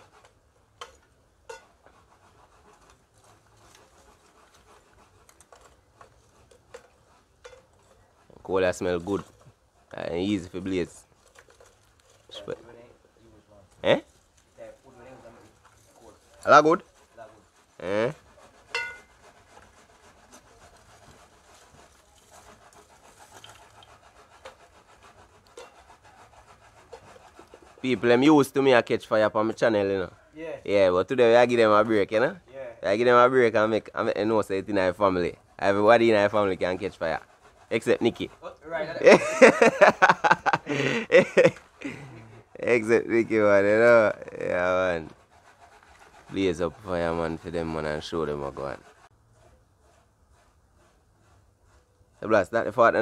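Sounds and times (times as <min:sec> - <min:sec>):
charcoal scraping: 0:00.0 - 0:53.0
charcoal clinking: 0:18.7 - 0:19.1.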